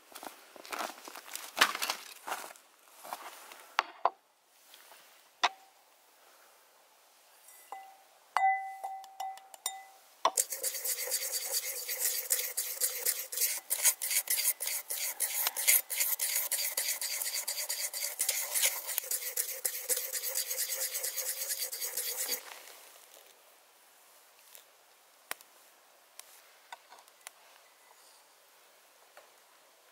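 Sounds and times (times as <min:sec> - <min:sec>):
cleaver clinking on clay bowl: 0:07.5 - 0:10.9
stirring dry spices in bowl: 0:10.3 - 0:22.6.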